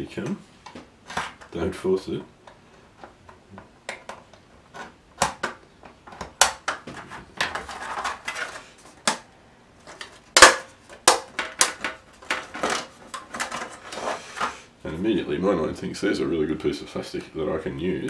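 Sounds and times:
plastic sheet snapping: 4.8s - 8.4s, 10.0s - 13.8s.

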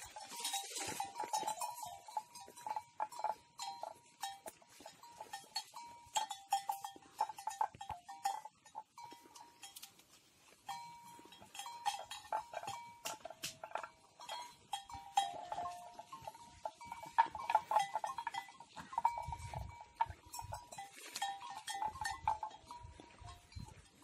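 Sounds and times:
animal neck bells clanking: 0.0s - 24.0s.

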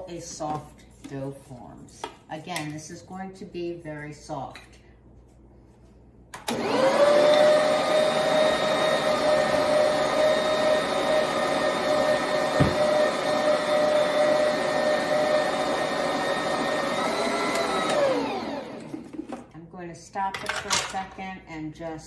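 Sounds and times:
stand mixer motor whining: 6.4s - 19.1s
knock: 12.6s - 12.8s.

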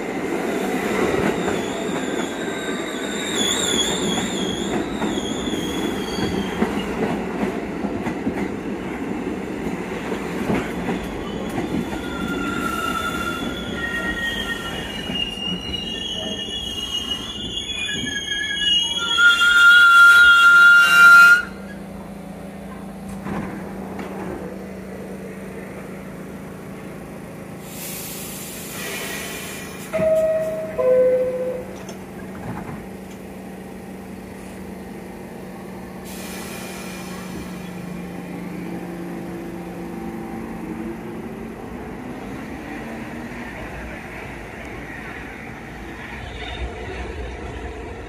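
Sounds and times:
train wheels squealing: 0.6s - 7.1s, 10.6s - 21.8s, 44.9s - 47.6s
stopped train humming: 20.2s - 48.0s
air hissing: 27.6s - 30.0s, 36.0s - 38.1s
two-tone door chime: 30.0s - 31.8s.

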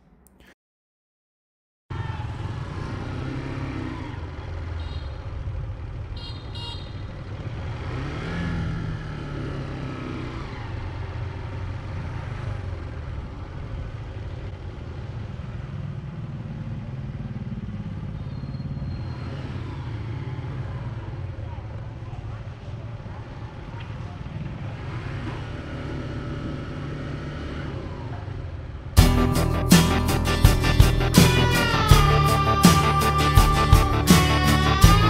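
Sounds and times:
motorbike engine and road rumble: 1.9s - 35.0s
horn beeps: 29.0s - 35.0s.

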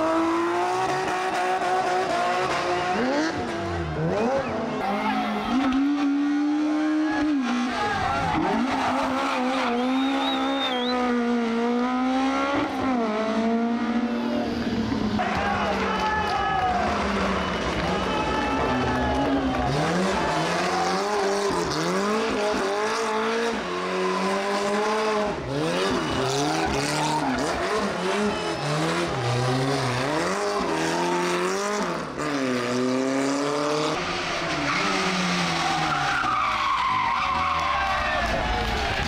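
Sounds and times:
rally car engine revving hard: 0.0s - 15.4s, 19.6s - 37.3s.

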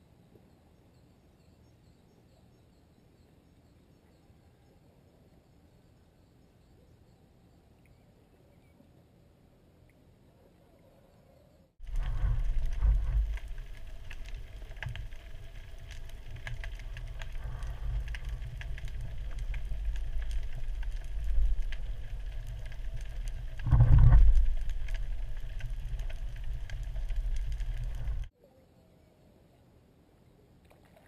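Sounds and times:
faint clicks: 11.8s - 28.3s
muffled underwater rumble: 11.8s - 28.3s.

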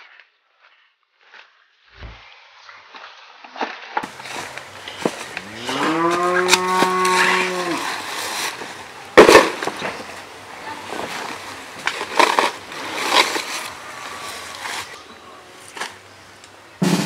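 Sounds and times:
rustling of fabric and undergrowth: 0.5s - 16.9s
jacket rustling: 4.0s - 15.0s
long low drawn-out call: 4.0s - 17.0s.

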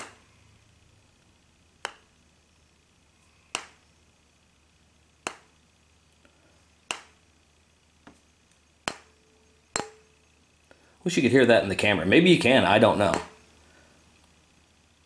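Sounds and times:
tuning fork struck: 8.8s - 10.9s.

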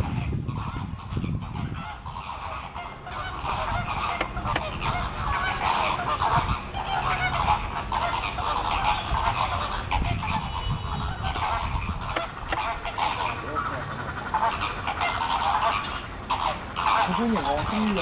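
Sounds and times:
birds honking and calling: 0.0s - 18.0s.

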